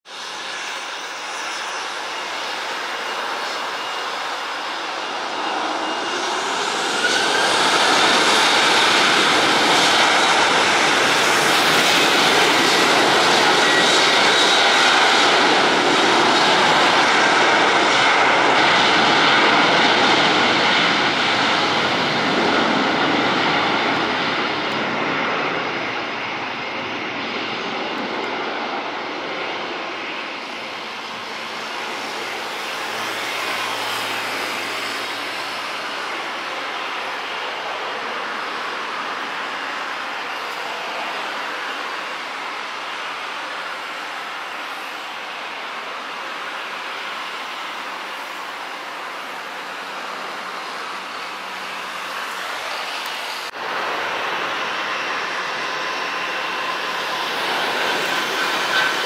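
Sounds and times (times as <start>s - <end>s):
jet engines at take-off thrust: 0.0s - 59.0s.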